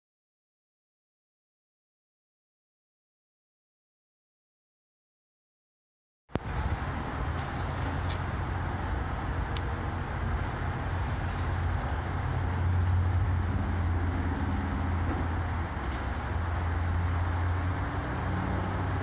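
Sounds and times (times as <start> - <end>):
low hum of tram equipment: 6.3 - 19.0
outdoor background noise: 6.3 - 19.0.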